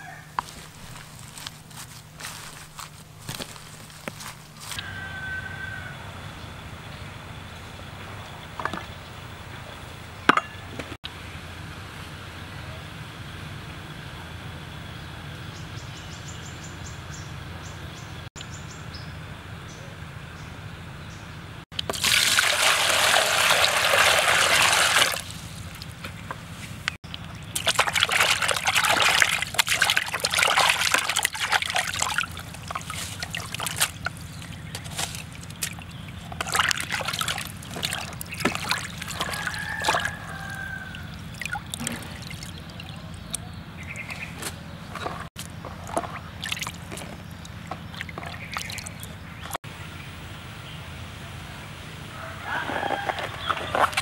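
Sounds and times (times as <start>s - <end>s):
water rushing: 21.9s - 25.9s, 27.2s - 43.4s
hands splashing in water: 27.0s - 43.4s, 45.0s - 49.5s.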